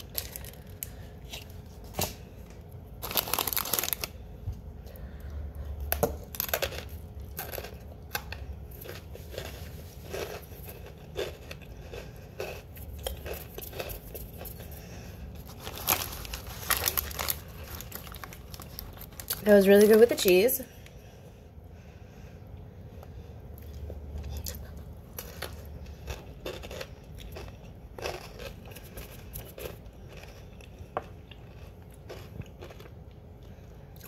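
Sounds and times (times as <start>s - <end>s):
plastic wrapper crinkling and tearing: 0.0s - 2.2s, 3.0s - 4.3s, 15.4s - 20.3s
crackers crunching while chewed: 0.0s - 19.5s, 23.0s - 34.0s.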